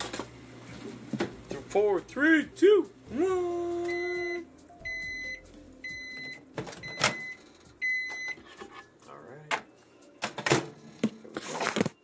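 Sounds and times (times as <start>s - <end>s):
microwave beeps: 3.8s - 8.4s.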